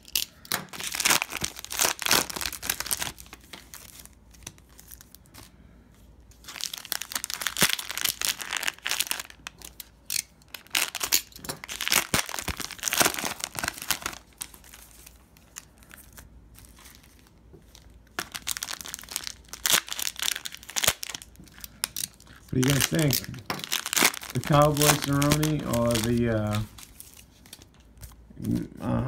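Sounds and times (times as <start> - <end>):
cellophane wrappers crinkling and tearing: 0.0 - 5.5, 6.3 - 28.7.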